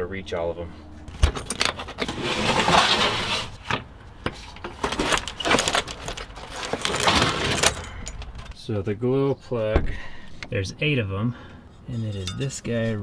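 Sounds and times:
rattles: 1.1 - 2.8, 4.6 - 8.6
scraping rustle: 1.1 - 3.8, 4.4 - 8.6.

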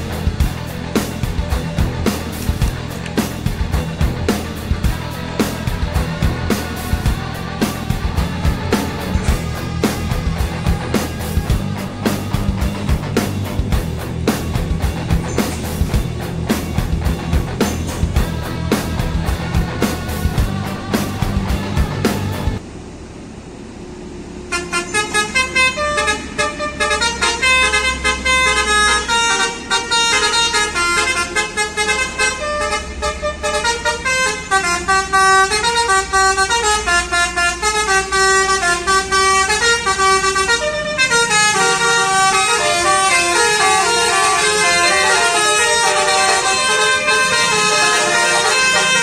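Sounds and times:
musical air horns: 0.0 - 22.6, 24.5 - 49.0
low rumble: 0.0 - 24.5.

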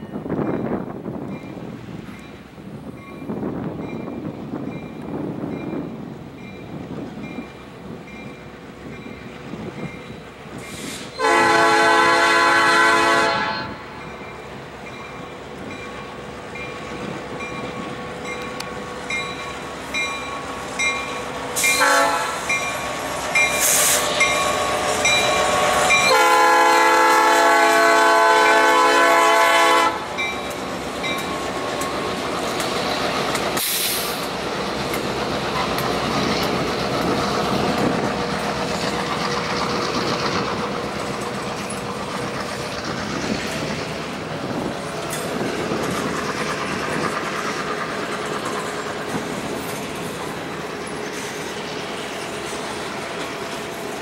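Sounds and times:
train horn blasts: 11.2 - 14.0, 21.6 - 22.6, 24.4 - 30.1
train wheels clattering: 29.9 - 54.0.

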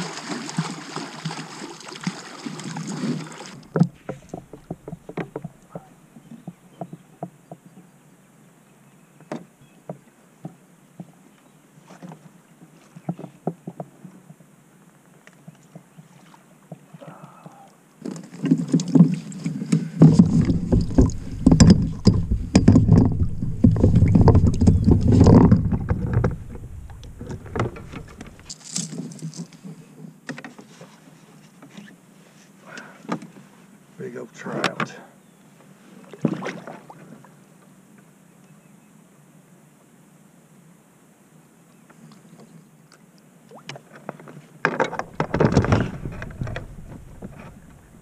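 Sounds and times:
thumping and rustling: 3.6 - 5.9, 19.8 - 30.6, 44.6 - 48.0
gear knocking against plastic kayak: 3.6 - 7.6, 18.4 - 28.5, 44.7 - 48.0.

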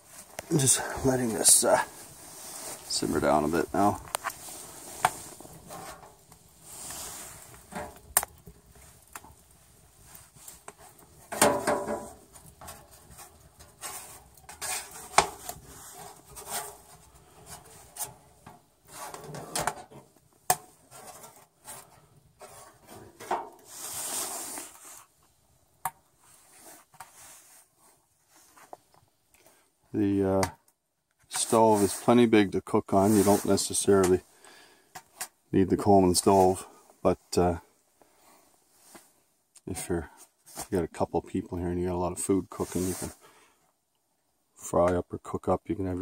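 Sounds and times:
metal scraping and knocking: 10.7 - 21.4, 22.4 - 23.7.

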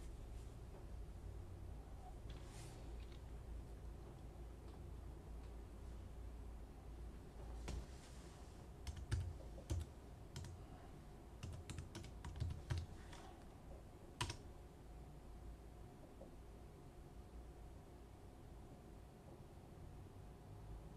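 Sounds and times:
keyboard keystrokes: 8.8 - 10.6, 11.4 - 13.3, 14.2 - 14.4.

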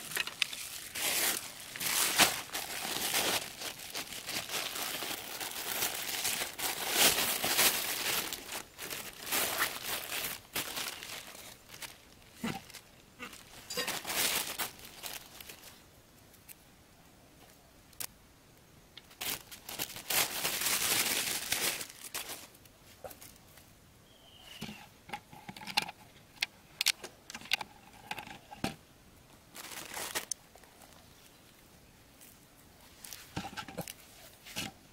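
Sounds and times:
plastic bags crinkling: 0.0 - 15.8, 19.1 - 23.4, 29.5 - 31.2.

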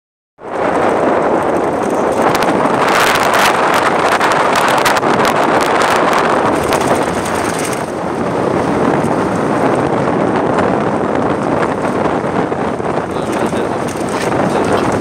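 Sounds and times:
moving road vehicle: 0.4 - 15.0
wind buffeting microphone: 0.4 - 15.0.

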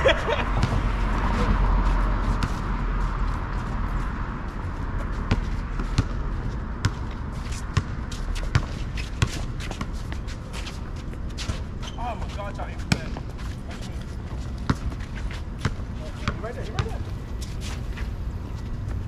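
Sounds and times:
basketball bouncing on asphalt: 0.5 - 4.0, 5.0 - 10.2, 12.8 - 13.3, 14.4 - 17.0.

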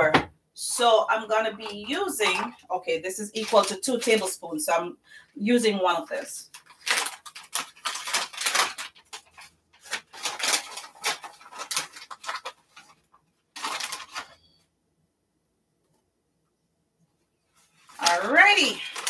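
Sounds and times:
plastic pouch crinkling: 3.2 - 4.4, 6.4 - 14.4, 17.8 - 19.0.

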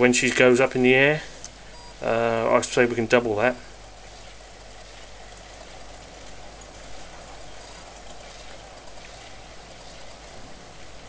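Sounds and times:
light wind hiss: 0.0 - 11.0.

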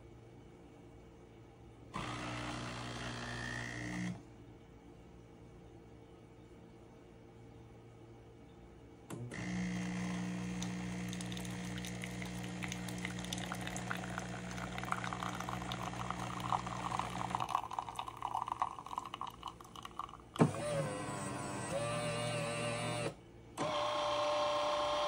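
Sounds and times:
espresso machine pump humming: 2.0 - 4.1, 9.1 - 25.0
water splashing into glass mug: 11.1 - 20.4.

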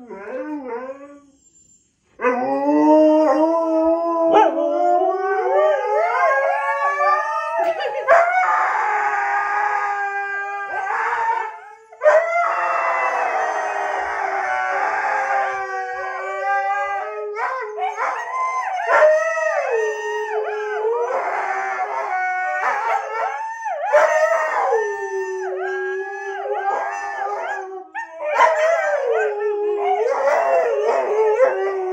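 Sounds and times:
huskies howling: 8.3 - 31.9.

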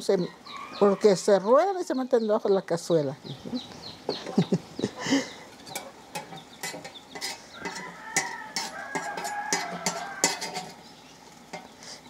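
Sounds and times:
chicken calling: 0.2 - 1.7, 3.2 - 12.0
knife clicking on metal griddle: 5.7 - 10.8.

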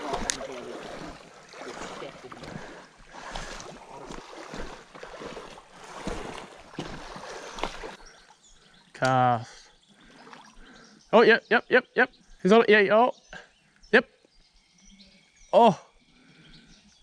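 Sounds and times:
flowing river water: 0.0 - 9.0, 9.8 - 11.0
footsteps on rock: 3.3 - 8.0.

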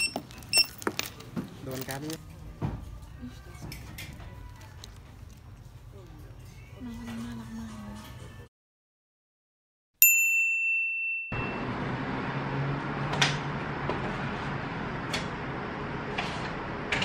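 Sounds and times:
kitchen room noise: 0.0 - 8.5, 11.4 - 17.0
bell-like ding: 10.0 - 11.7.

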